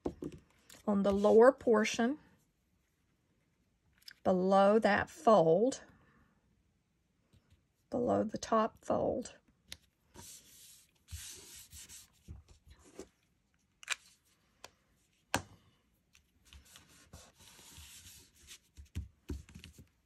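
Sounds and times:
hands smoothing paper: 0:10.1 - 0:13.0, 0:16.4 - 0:19.0.

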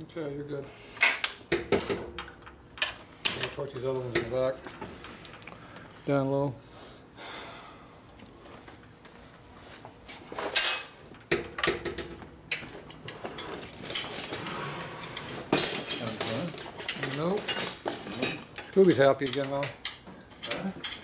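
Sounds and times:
hand tools clinking on steel: 0:01.0 - 0:05.5, 0:10.5 - 0:21.0.

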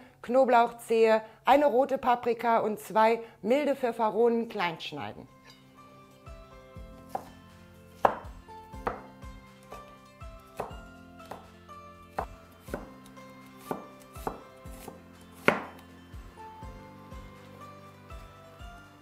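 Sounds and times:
background music: 0:00.0 - 0:19.0
knife chopping on cutting board: 0:07.0 - 0:07.4, 0:08.0 - 0:09.9, 0:10.5 - 0:11.5, 0:12.1 - 0:15.8.

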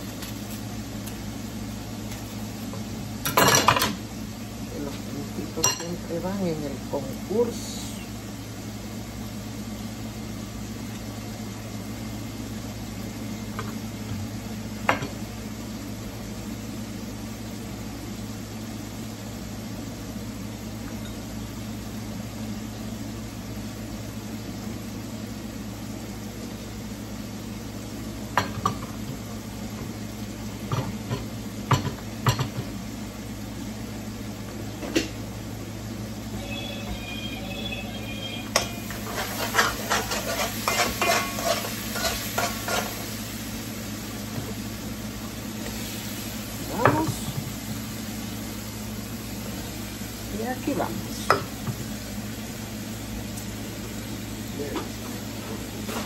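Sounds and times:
vegetables sizzling in a pan: 0:00.0 - 0:56.0
low hum: 0:35.2 - 0:44.1.

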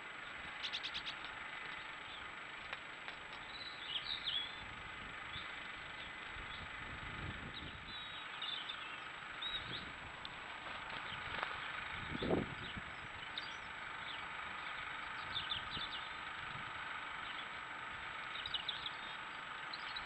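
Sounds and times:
outdoor background hiss: 0:00.0 - 0:20.0
small birds chirping: 0:00.0 - 0:20.0.

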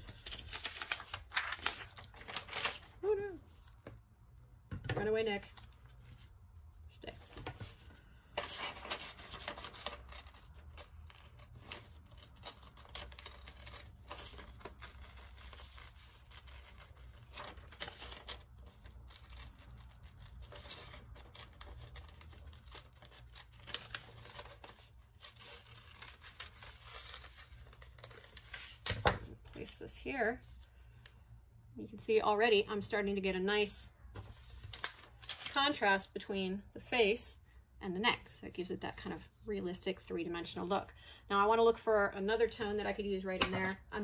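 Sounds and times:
paper rustling and crinkling: 0:00.0 - 0:04.0, 0:07.1 - 0:29.7, 0:34.1 - 0:35.8.

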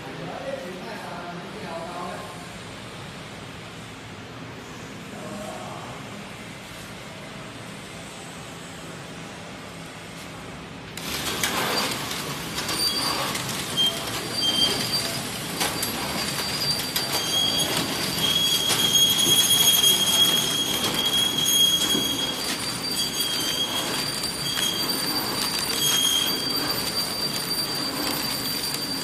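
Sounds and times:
packing machine clatter: 0:11.0 - 0:29.0
high-pitched machine whine: 0:11.5 - 0:29.0.

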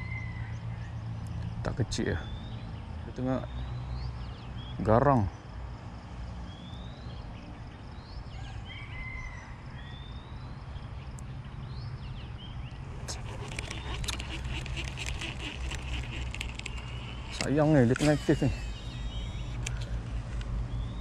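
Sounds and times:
small birds chirping: 0:09.8 - 0:21.0
fishing reel clicking: 0:12.9 - 0:19.9.

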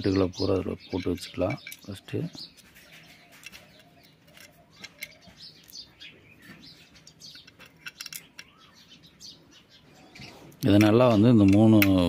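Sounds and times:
small birds chirping: 0:00.0 - 0:12.0
metallic clicks of nuts and washers: 0:00.9 - 0:02.7, 0:03.4 - 0:05.8, 0:07.0 - 0:08.6, 0:10.6 - 0:12.0.

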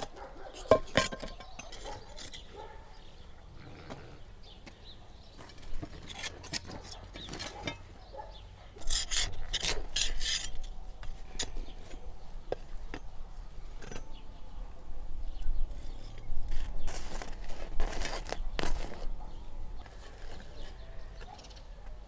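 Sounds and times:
metal scraper scraping brick: 0:00.0 - 0:02.6, 0:05.4 - 0:08.0, 0:08.8 - 0:12.1, 0:15.7 - 0:19.2, 0:19.8 - 0:21.3
metal tools clicking: 0:00.6 - 0:02.6, 0:08.8 - 0:12.0.

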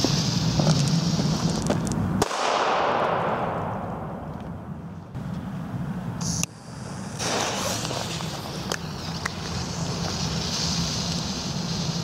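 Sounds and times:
fuse hissing: 0:00.0 - 0:01.8, 0:06.2 - 0:12.0.

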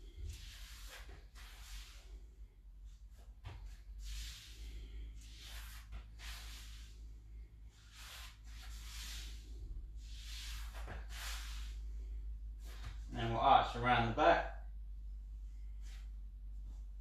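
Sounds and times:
man breathing slowly: 0:00.0 - 0:13.1
steady low hum: 0:00.0 - 0:17.0.

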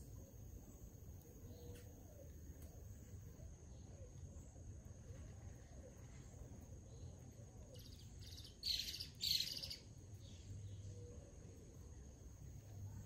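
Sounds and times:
bird calling: 0:07.7 - 0:09.9.

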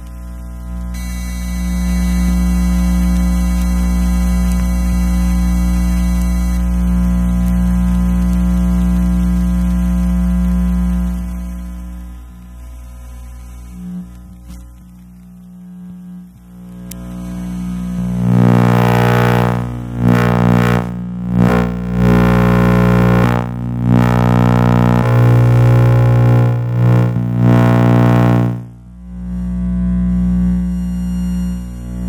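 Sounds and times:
electrical interference buzzing: 0:18.2 - 0:28.7.

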